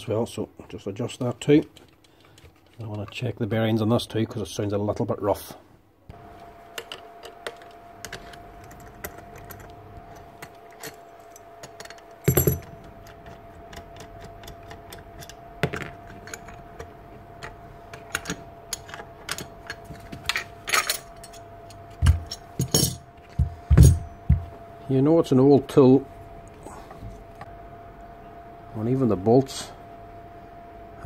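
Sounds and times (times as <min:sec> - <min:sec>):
faint steady hum: 0:00.0 - 0:31.0.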